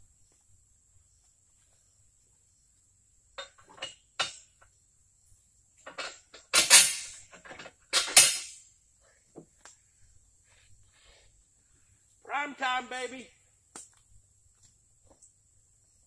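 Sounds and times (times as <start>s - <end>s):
loud metal clanks ringing: 6.0s - 7.3s, 7.9s - 8.6s.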